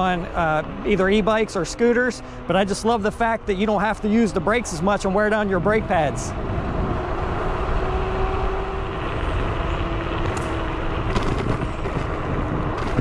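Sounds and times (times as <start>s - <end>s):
wind buffeting microphone: 2.6s - 13.0s
electric motor whine: 6.6s - 13.0s
scooter rattling over bumps: 8.8s - 13.0s
tyre rumble: 10.1s - 13.0s.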